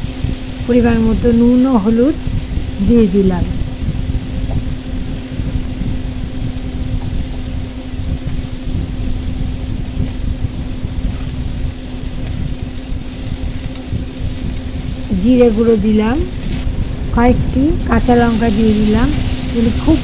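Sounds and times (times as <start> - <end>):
constant low rumble: 0.0 - 20.0
low machine hum: 0.0 - 20.0.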